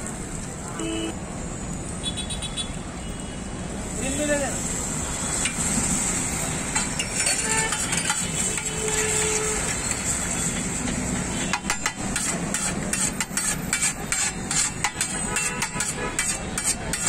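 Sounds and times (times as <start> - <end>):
metal spatula scraping griddle: 5.4 - 17.0.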